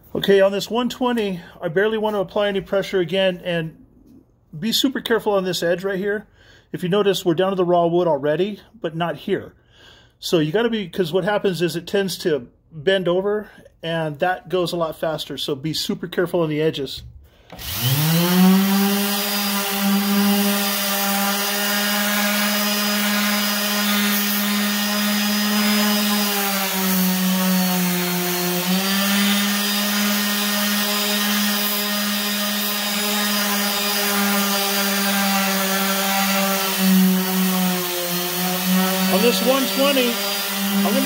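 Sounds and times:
orbital sander sanding wood: 17.5 - 41.0.

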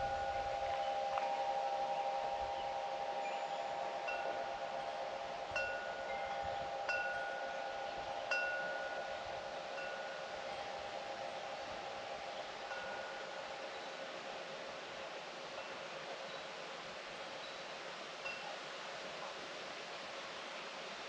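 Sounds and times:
high chime struck and ringing: 0.0 - 13.4
low wind chime tones humming: 0.0 - 19.4.

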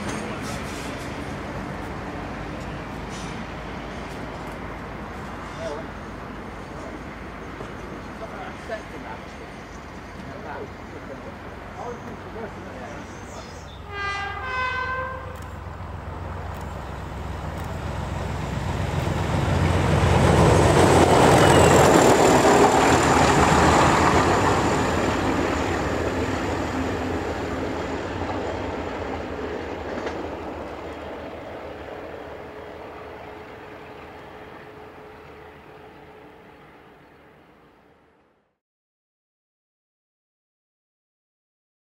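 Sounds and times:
diesel locomotive passing: 0.0 - 38.3
train horn blast: 13.8 - 15.4.

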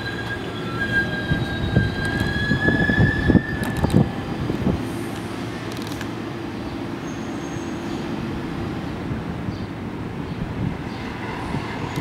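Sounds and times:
train wheel squeal: 0.0 - 5.2
rumble of train cars: 0.0 - 12.0.

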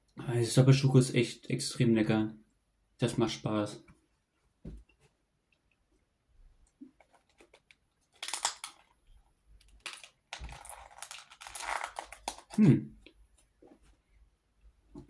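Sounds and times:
packaging crinkling and tearing: 7.0 - 9.0, 9.6 - 12.6.

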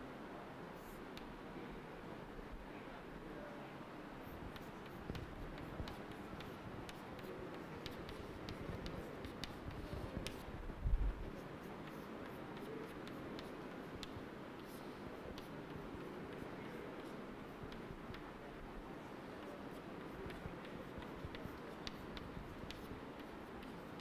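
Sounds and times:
chalk ticking on chalkboard: 4.3 - 10.5, 11.3 - 18.4, 19.1 - 24.0.

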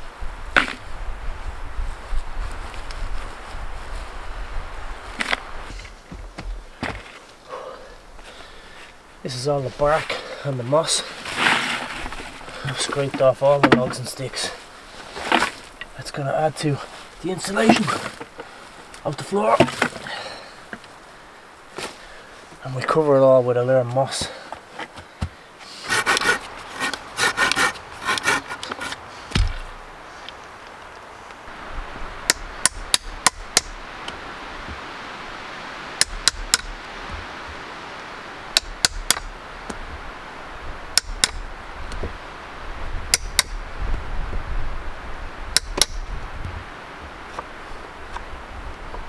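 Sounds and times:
moss and bark rustling: 0.0 - 49.0
steady hiss: 0.0 - 49.0
sharp wooden knocks: 13.6 - 14.0, 24.9 - 29.7, 32.3 - 33.8, 36.0 - 37.2, 38.5 - 39.3, 41.0 - 41.4, 43.1 - 43.6, 45.5 - 46.0.

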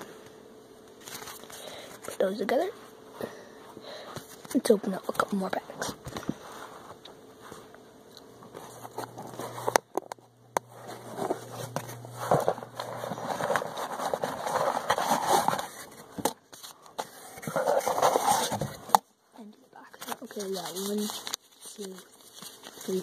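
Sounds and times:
paper and cardboard rustling: 1.0 - 2.7, 10.8 - 19.0, 19.8 - 23.0.

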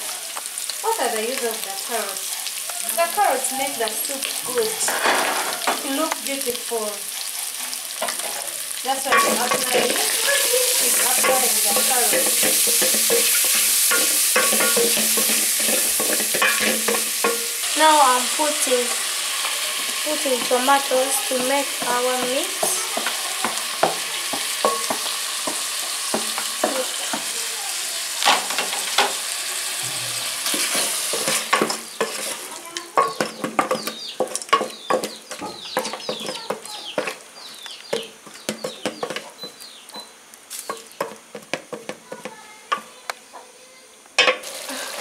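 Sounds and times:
meat sizzling in a pot: 0.0 - 43.0, 44.2 - 45.0
wooden spoon scraping a pot: 7.1 - 27.3, 29.8 - 37.2
spoon knocking against pot: 9.1 - 17.5, 21.4 - 27.3, 32.9 - 37.2.

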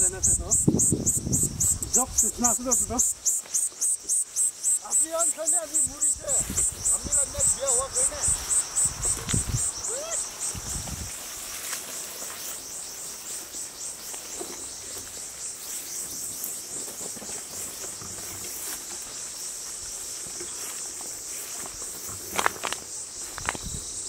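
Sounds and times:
insects chorus: 0.0 - 24.0
footsteps through tall grass: 4.5 - 24.0.

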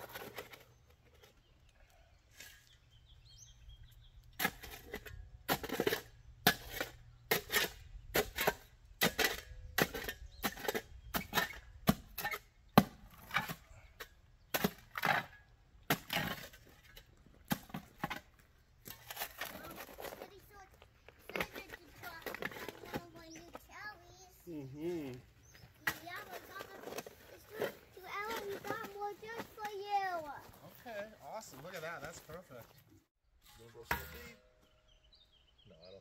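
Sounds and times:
shovel striking rocky ground: 14.5 - 20.6, 21.2 - 23.4, 25.7 - 30.0.

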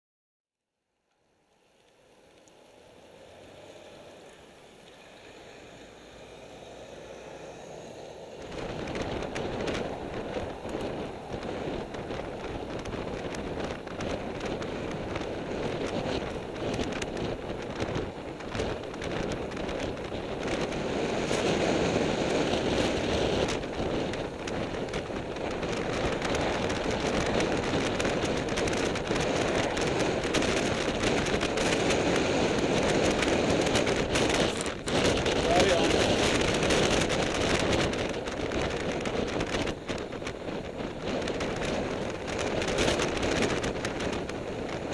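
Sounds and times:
tyre and road rumble: 1.6 - 44.9
wind buffeting microphone: 3.2 - 44.9.

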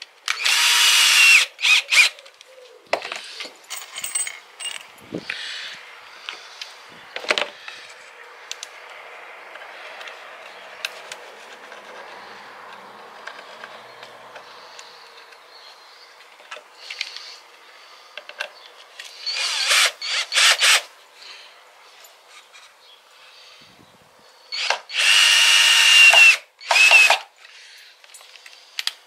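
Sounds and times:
power drill drilling wood: 0.3 - 2.1, 19.2 - 20.9, 24.5 - 27.3.

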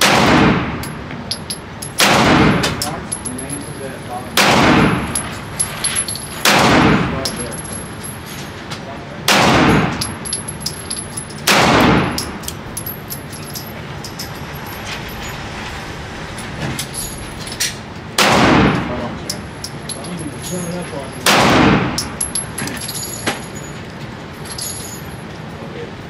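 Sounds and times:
gunshots: 0.0 - 0.8, 2.0 - 2.8, 4.4 - 5.2, 6.4 - 7.2, 9.3 - 10.0, 11.5 - 12.3, 18.2 - 19.0, 21.2 - 22.0.

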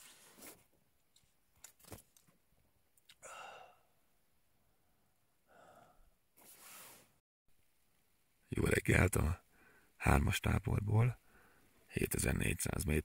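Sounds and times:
breathy sigh: 3.2 - 3.9, 5.5 - 6.1.

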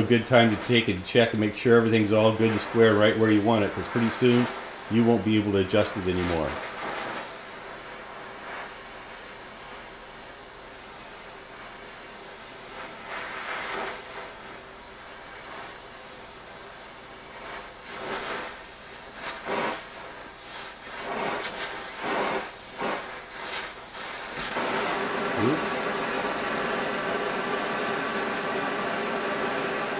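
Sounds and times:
gas torch hissing: 0.0 - 29.9.

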